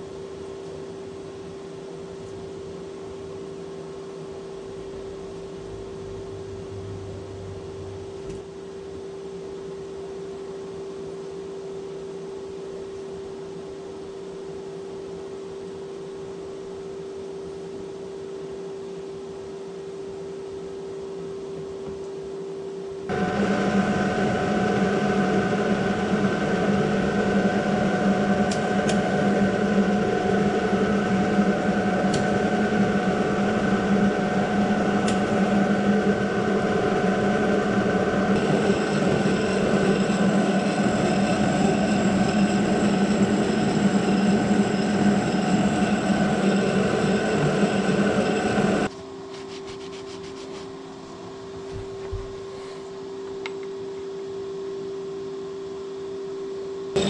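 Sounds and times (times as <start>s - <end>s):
steady hum: 0.0s - 57.0s
higher whine: 21.7s - 49.0s
milling machine gear whine: 23.1s - 48.9s.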